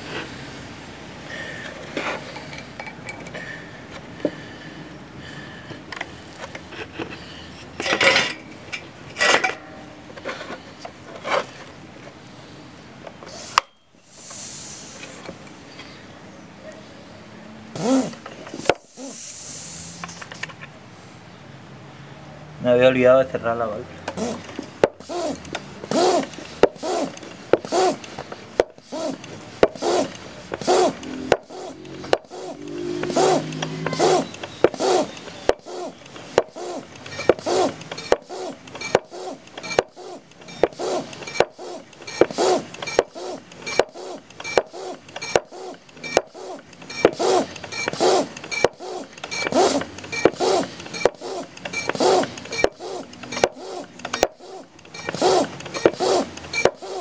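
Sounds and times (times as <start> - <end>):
hand pump strokes rushing air: 13.3 - 15.7, 17.8 - 20.5, 24.1 - 57.0
faint pump squeak: 33.8 - 57.0.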